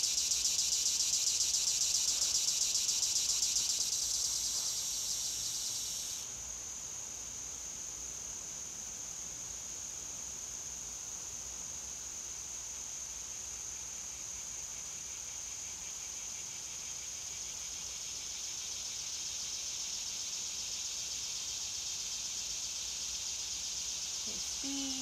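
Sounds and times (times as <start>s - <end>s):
insects buzzing: 0.0s - 6.4s, 13.6s - 25.0s.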